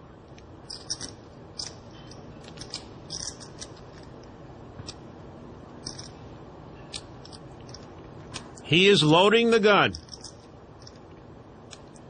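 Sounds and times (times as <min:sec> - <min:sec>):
poker chips clicking: 0:02.4 - 0:04.1, 0:09.9 - 0:11.0.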